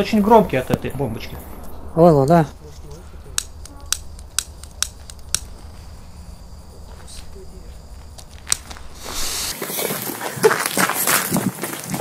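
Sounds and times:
lighter igniter clicking: 3.4s - 5.5s.

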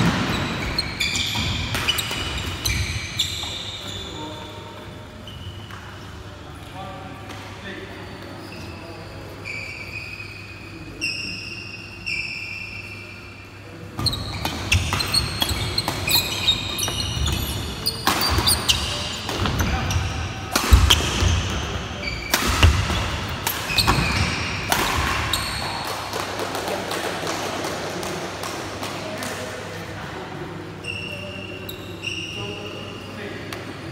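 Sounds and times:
shoe squeaks: 0.0s - 6.0s, 8.0s - 25.8s, 30.8s - 33.4s
racket hitting shuttlecock: 18.0s - 19.8s, 20.4s - 21.5s, 22.3s - 26.6s.

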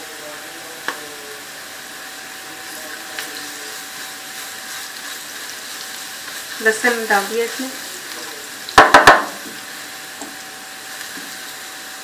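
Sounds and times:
onions sizzling in hot oil: 0.0s - 12.0s
spatula stirring in a pan: 2.1s - 12.0s
spatula knock: 8.8s - 9.4s.

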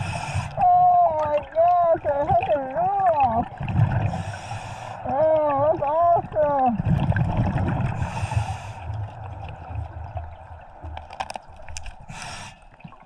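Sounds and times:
breath hissing through regulator: 0.0s - 0.6s, 8.0s - 8.9s, 12.1s - 12.7s
low rumble of underwater bubbles: 0.0s - 13.0s.

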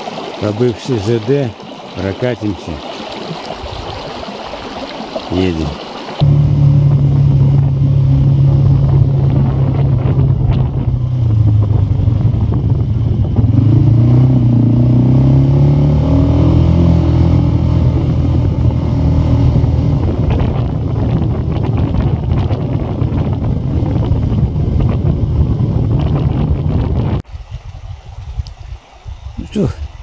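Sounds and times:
vehicle engine running: 6.2s - 27.0s.

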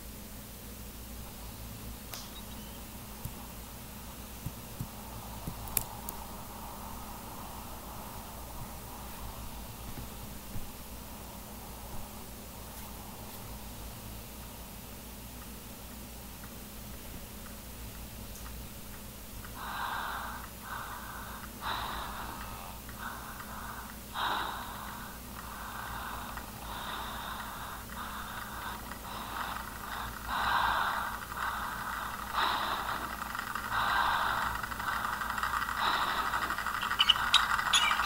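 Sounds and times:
low steady hum: 0.0s - 38.0s
uneven breathing: 19.4s - 38.0s.

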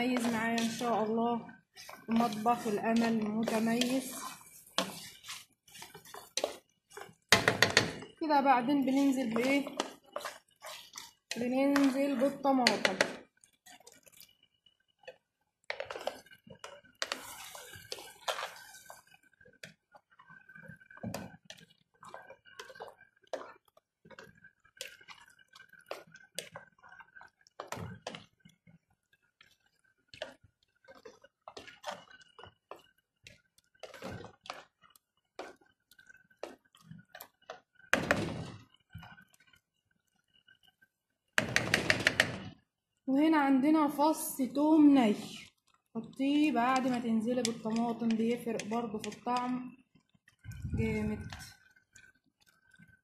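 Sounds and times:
spoon knocking and scraping pot: 0.0s - 13.3s, 15.0s - 19.0s, 20.5s - 26.6s, 33.6s - 39.5s, 41.4s - 42.6s, 45.2s - 49.6s
tomatoes hissing in pot: 1.7s - 6.6s.

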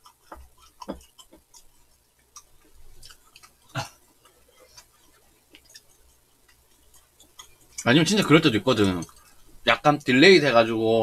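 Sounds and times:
slurping and chewing noodles: 0.0s - 10.1s
utensils clicking on bowls: 4.2s - 10.2s.

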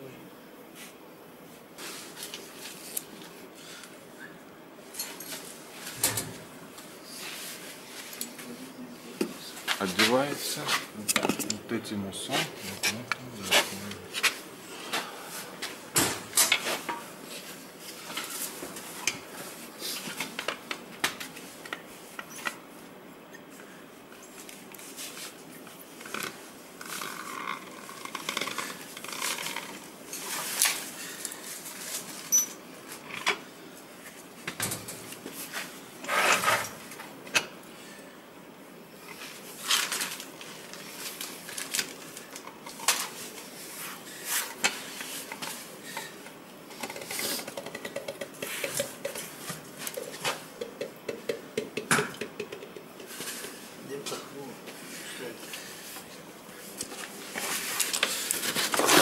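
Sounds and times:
rubber rubbing and scraping: 36.0s - 36.6s.

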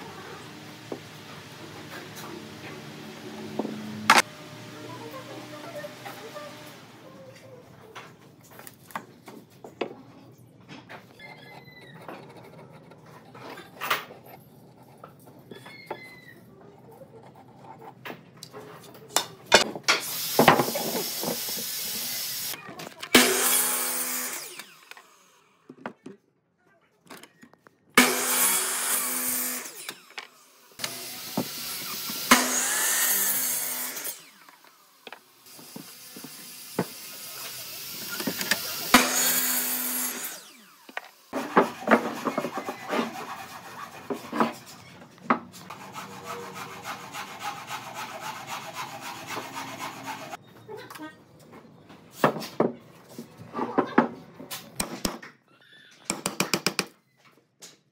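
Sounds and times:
power tool humming and hissing: 20.0s - 25.5s, 28.0s - 41.4s.

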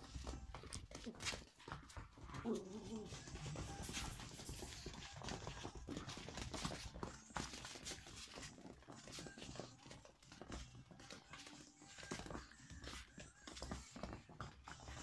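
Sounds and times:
claws scrabbling on wooden floor: 0.0s - 15.0s
puppy vocal sound: 1.0s - 4.1s.

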